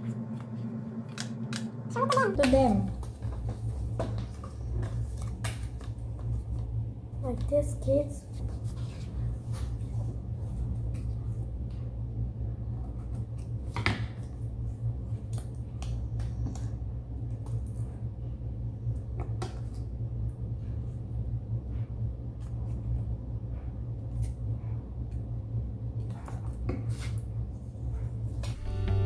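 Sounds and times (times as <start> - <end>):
low hum: 0.0 - 29.0.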